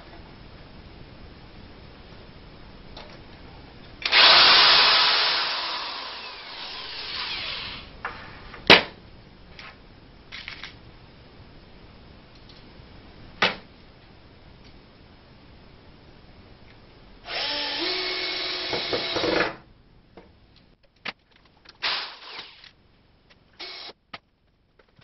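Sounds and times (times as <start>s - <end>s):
electric drill boring: 4.0s - 7.9s, 17.3s - 19.4s, 21.8s - 22.7s, 23.6s - 23.9s.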